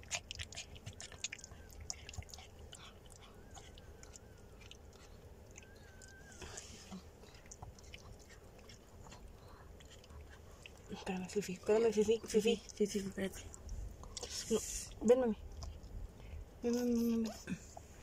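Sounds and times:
dog licking wet smacking: 0.0 - 6.3, 7.2 - 14.4.

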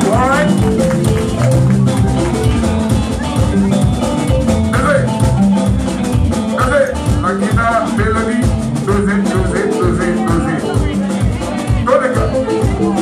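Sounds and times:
live band playing: 0.0 - 13.0
amplified voices singing: 9.4 - 13.0.

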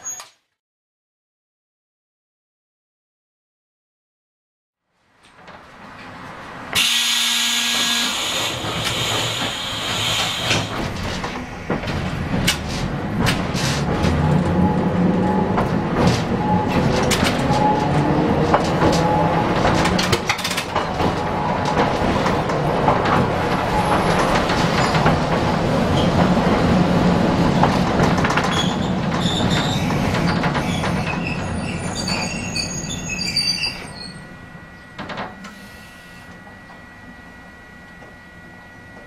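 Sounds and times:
tram motors whining: 6.0 - 39.0
wheels clicking over track: 8.2 - 32.8.

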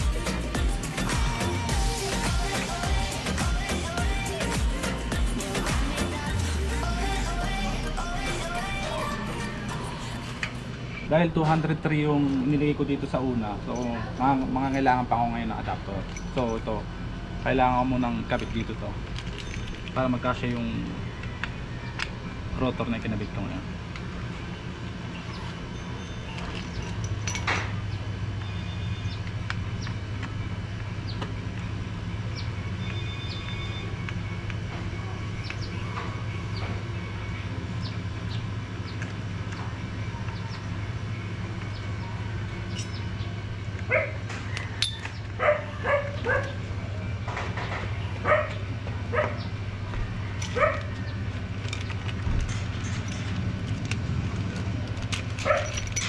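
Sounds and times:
dog barking: 43.9 - 44.2, 45.4 - 46.6, 48.2 - 49.5, 50.6 - 50.9, 55.4 - 55.7.

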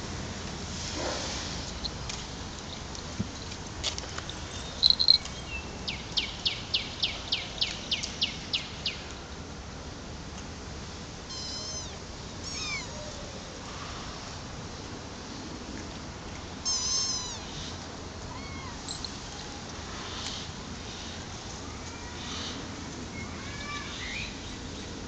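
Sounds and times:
quick high chirps: 4.7 - 5.3
kittens mewing: 11.3 - 13.4, 16.6 - 17.6.

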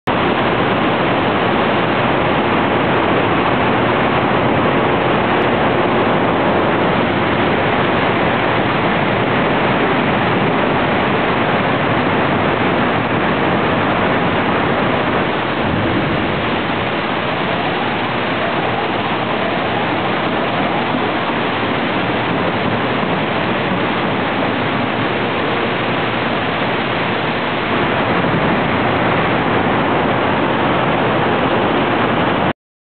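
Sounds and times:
steel mill machinery noise: 0.1 - 32.5
faint rising whines: 12.9 - 30.2.

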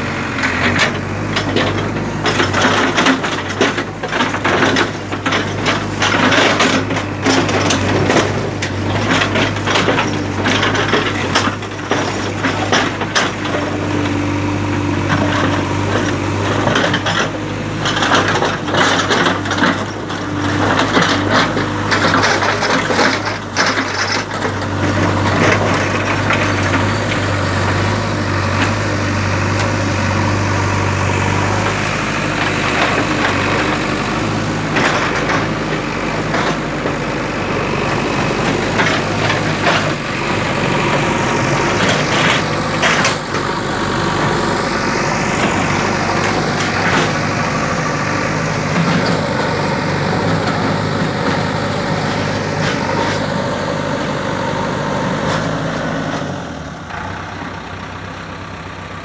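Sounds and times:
diesel engine running: 0.0 - 59.0
sharp knocks and clatters: 37.9 - 49.6.

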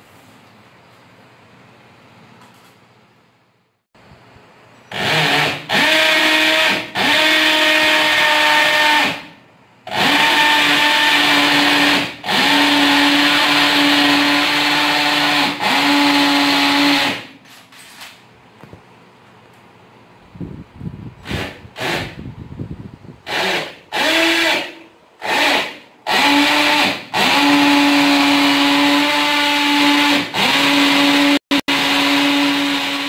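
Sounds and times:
electric drill whining: 4.9 - 9.2, 9.9 - 17.2, 23.3 - 33.0.

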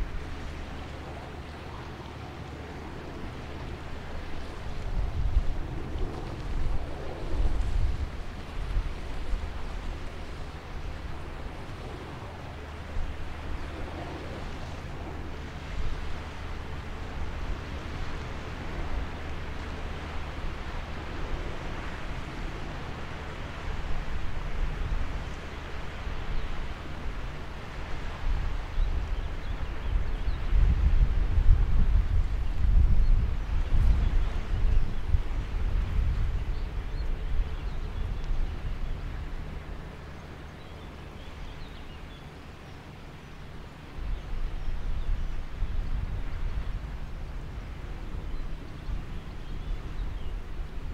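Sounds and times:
wind blowing across microphone: 0.0 - 50.9.

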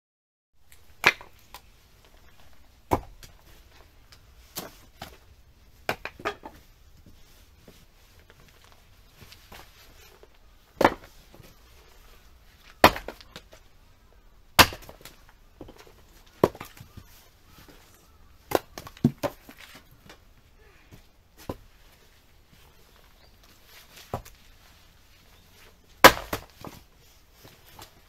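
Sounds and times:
axe splitting firewood: 1.0 - 1.7, 2.8 - 3.8, 5.8 - 6.7, 9.4 - 11.4, 12.6 - 13.6, 14.5 - 17.0, 18.4 - 19.8, 26.0 - 26.9.

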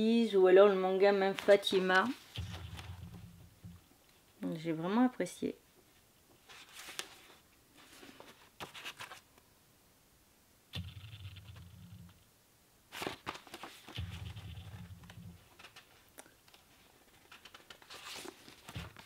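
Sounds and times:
paper rustling: 1.3 - 3.4, 6.4 - 9.3, 12.9 - 19.0
pages turning with soft clicks: 1.3 - 3.8, 6.3 - 9.4, 12.9 - 19.0
low steady hum: 1.9 - 5.0, 9.7 - 12.9, 14.0 - 15.6.

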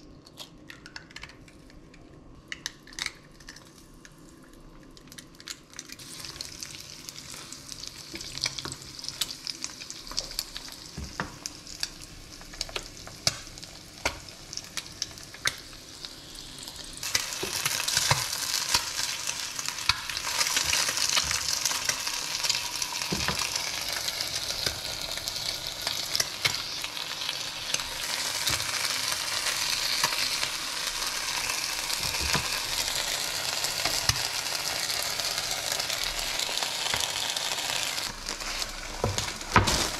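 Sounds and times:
eggs sizzling in oil: 5.9 - 39.9.

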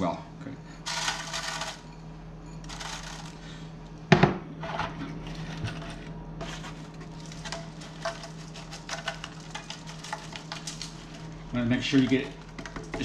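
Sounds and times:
sugar rattling in metal pan: 0.8 - 2.0, 2.6 - 3.5, 6.4 - 13.0
pan knocking: 11.9 - 13.0.

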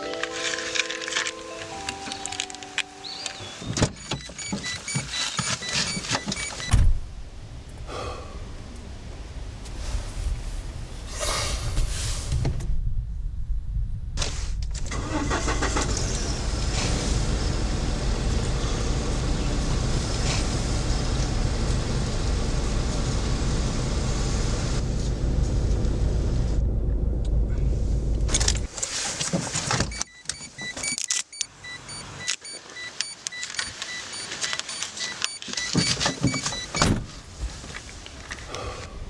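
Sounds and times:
clicks and rustling inside car: 2.0 - 6.7, 28.2 - 38.5
car engine idling: 14.9 - 28.7.

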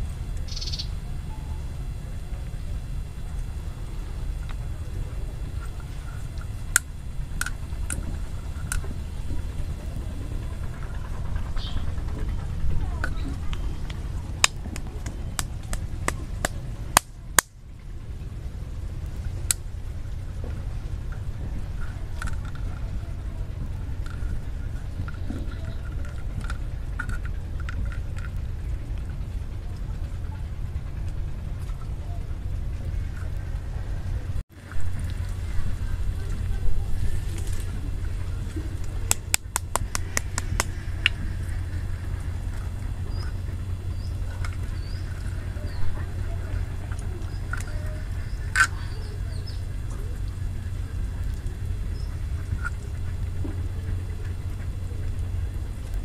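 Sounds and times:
steady low rumble: 0.0 - 56.0
small animal chirping: 0.4 - 1.6, 10.7 - 13.8.

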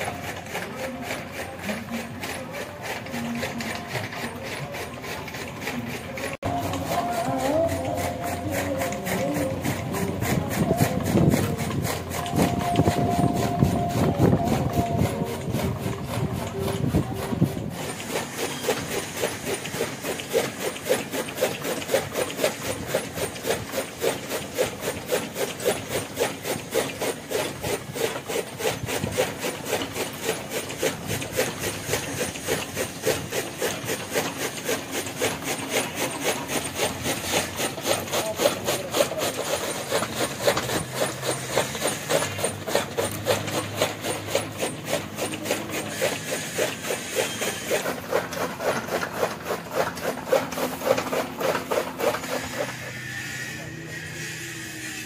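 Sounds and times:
chaff cutter chopping fodder: 0.0 - 55.0
brief steady tone: 12.2 - 15.4.

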